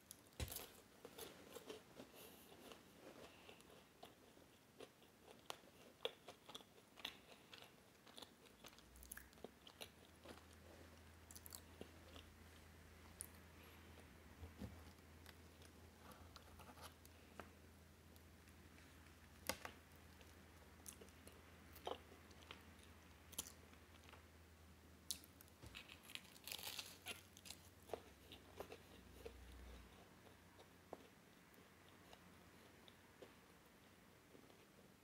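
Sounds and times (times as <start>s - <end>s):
chewing and crunching pastry: 0.0s - 14.2s, 14.8s - 24.3s, 25.0s - 35.0s
crisp crackles of pastry layers: 25.1s - 31.2s.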